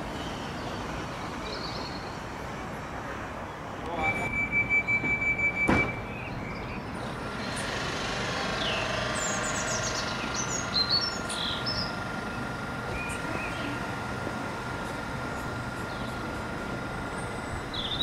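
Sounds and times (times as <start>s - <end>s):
electric hum with whine: 3.8s - 18.0s
rapid door warning beeps: 4.0s - 6.6s
train doors shutting knock: 4.9s - 6.2s
small birds chirping: 6.1s - 18.0s.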